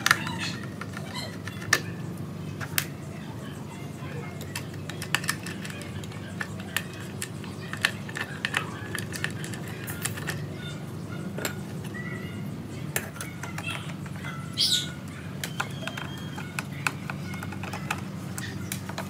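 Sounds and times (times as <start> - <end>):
steady low hum: 0.0 - 19.0
high squeak: 13.4 - 18.7.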